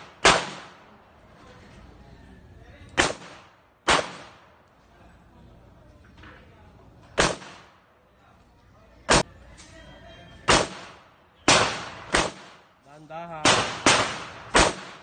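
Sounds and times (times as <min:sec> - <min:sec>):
handgun shots with echo: 0:03.0 - 0:04.4, 0:07.2 - 0:07.7, 0:10.5 - 0:12.6, 0:13.4 - 0:15.0.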